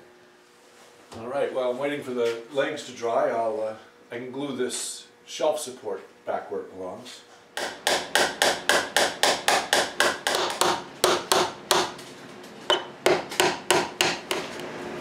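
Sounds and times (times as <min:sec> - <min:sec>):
hammer tapping on wood: 0:07.6 - 0:11.9, 0:12.7 - 0:14.4.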